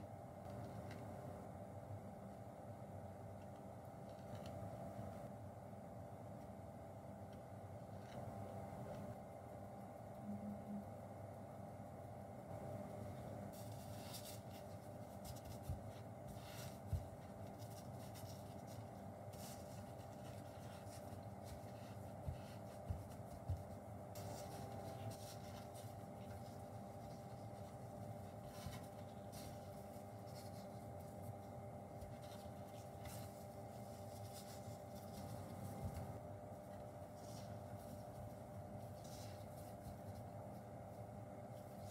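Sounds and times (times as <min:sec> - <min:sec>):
steady hum: 0:00.0 - 0:41.9
gloved fingers rubbing on wood: 0:13.5 - 0:40.8.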